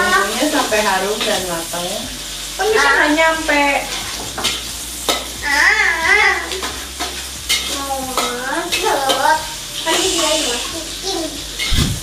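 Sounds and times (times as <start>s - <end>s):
vegetables sizzling in hot oil: 0.0s - 12.0s
metal spatula scraping wok: 6.4s - 10.9s, 11.5s - 12.0s.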